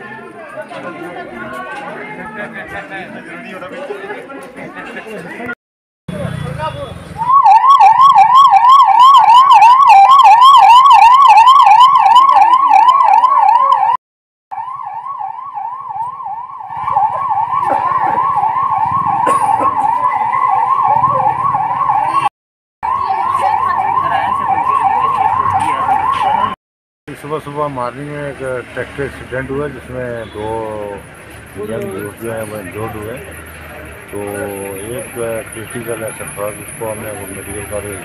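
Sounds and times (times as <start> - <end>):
ambulance siren: 7.1 - 26.6.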